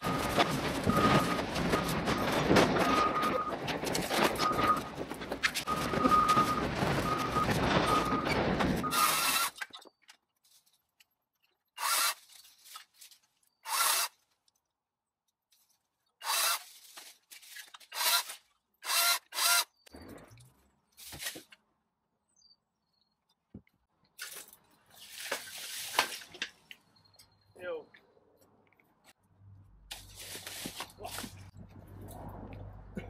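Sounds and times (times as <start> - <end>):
hedge trimmer cutting: 11.8 - 12.3, 13.6 - 14.2, 16.2 - 16.7, 17.9 - 19.7.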